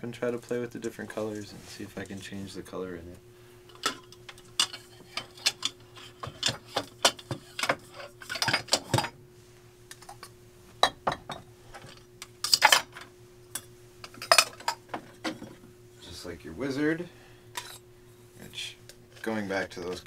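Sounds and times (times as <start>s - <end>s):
glass bottles clinking: 14.1s - 15.6s.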